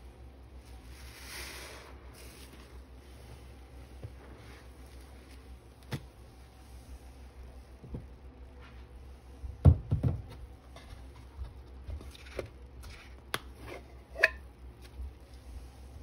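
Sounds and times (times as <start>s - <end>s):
wet sponge squishing in foam: 0.5s - 7.8s.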